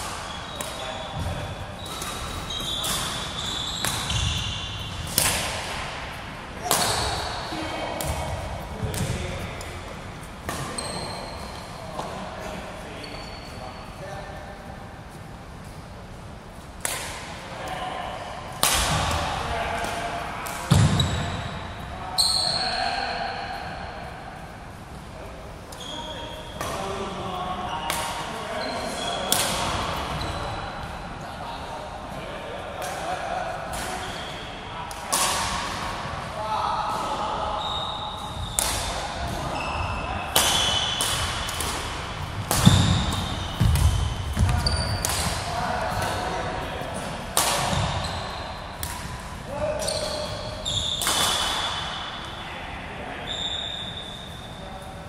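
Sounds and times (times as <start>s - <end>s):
racket hitting shuttlecock: 0.0s - 6.0s, 6.6s - 7.4s, 10.4s - 10.8s, 18.5s - 19.2s, 40.3s - 46.4s, 47.4s - 48.0s, 48.8s - 50.0s, 51.0s - 51.9s
shoe squeaks on wooden court: 0.2s - 5.1s, 10.6s - 11.8s, 13.0s - 13.8s, 22.2s - 22.8s, 25.7s - 26.6s, 28.5s - 29.4s, 37.6s - 38.7s, 39.4s - 41.0s, 42.6s - 45.3s, 47.7s - 48.8s, 49.6s - 51.9s, 53.3s - 54.6s
racket striking shuttlecock: 5.0s - 5.8s, 40.3s - 46.1s.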